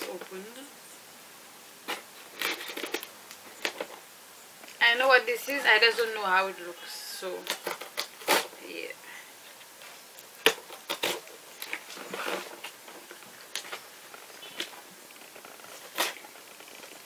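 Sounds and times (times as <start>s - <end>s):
cardboard parcel being opened: 1.8s - 4.0s, 9.6s - 17.0s
packing tape rustling: 1.8s - 4.0s, 9.5s - 17.0s.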